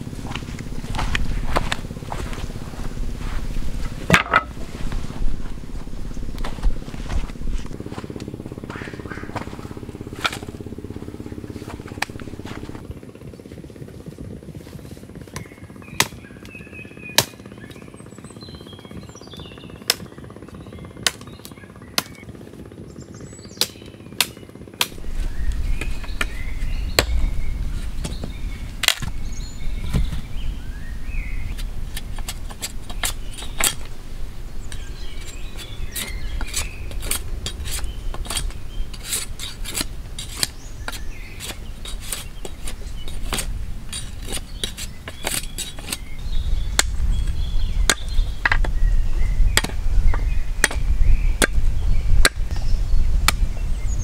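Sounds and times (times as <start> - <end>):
birds chirping: 0.0 - 13.6, 15.2 - 54.0
low rumble: 0.0 - 14.5, 24.9 - 54.0
machete chopping wood: 16.0 - 16.2, 17.2 - 17.4, 52.2 - 52.5.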